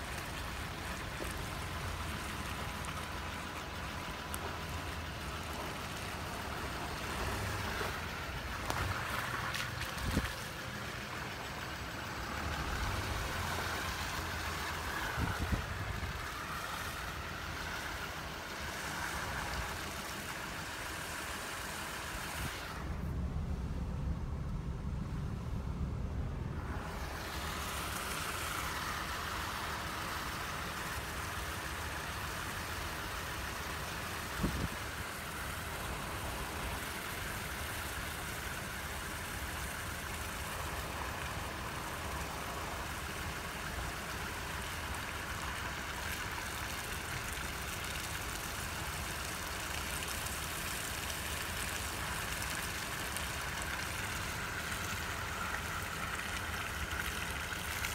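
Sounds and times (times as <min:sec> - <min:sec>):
car running: 0:00.0 - 0:57.9
wind noise on microphone: 0:09.8 - 0:10.4, 0:15.0 - 0:16.4, 0:34.2 - 0:35.0.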